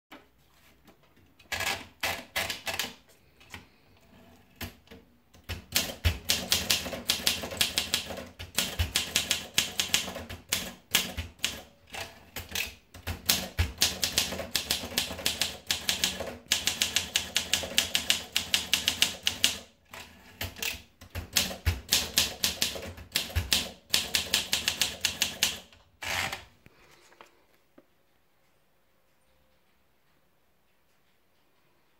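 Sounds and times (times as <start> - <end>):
typewriter keystroke clacks: 1.5 - 3.0, 4.6 - 25.8.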